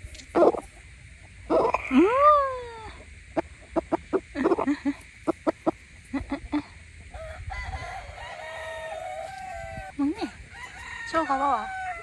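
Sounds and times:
chickens clucking: 0:00.0 - 0:02.0, 0:02.8 - 0:09.9.

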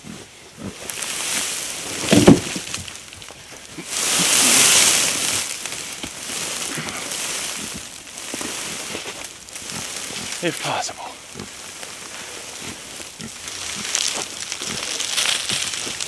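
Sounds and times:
straw bale rolling over dry leaves: 0:00.0 - 0:16.0.

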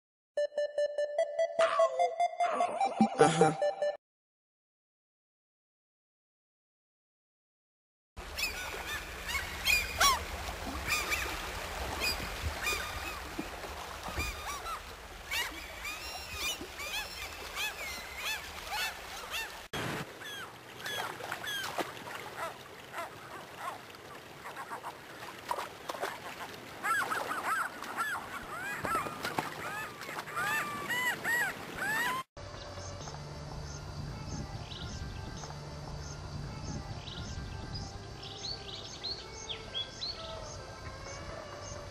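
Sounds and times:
gulls calling: 0:08.2 - 0:32.3
rushing river: 0:08.2 - 0:32.3.

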